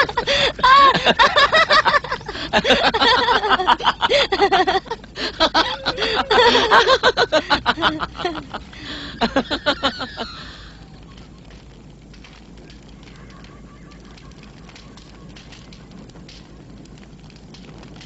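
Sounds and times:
person laughing: 0.0 - 11.0.

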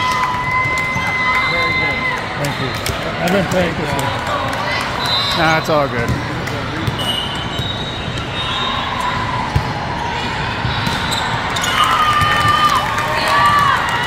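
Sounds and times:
echoing sports hall din: 0.0 - 14.0
girls shouting and cheering: 11.6 - 14.0.

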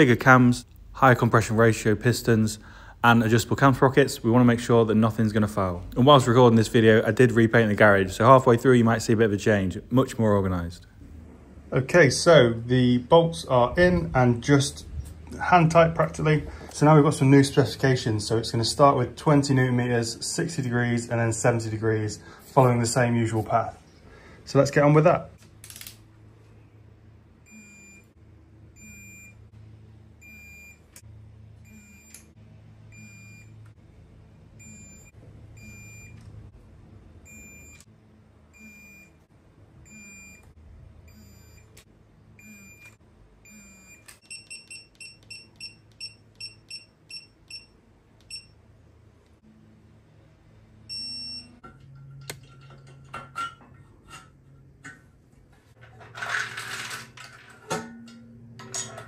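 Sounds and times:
torque wrench beeping: 42.4 - 48.5
metal clinking: 55.8 - 59.0.

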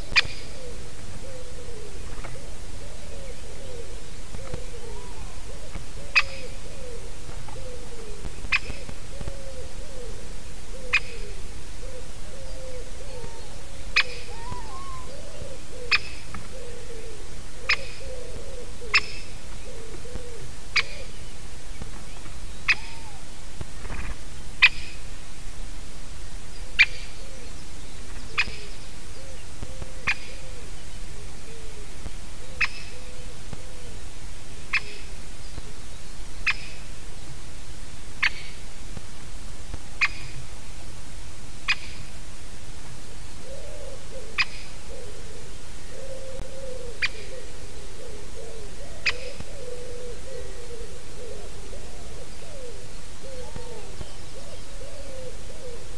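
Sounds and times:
low wavering calls: 0.0 - 21.5, 22.1 - 24.0, 43.4 - 55.9
woodpecker calling: 0.0 - 24.0, 40.0 - 40.4, 46.0 - 55.9.

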